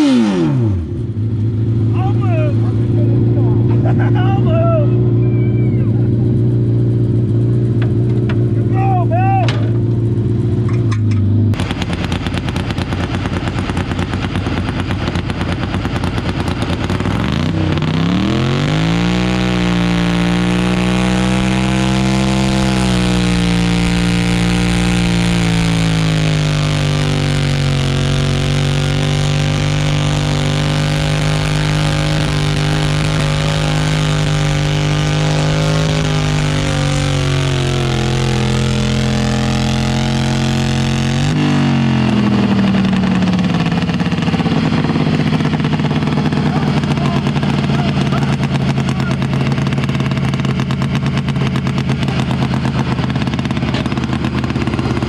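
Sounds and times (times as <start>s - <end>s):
tractor engine running under load: 9.6s - 55.0s.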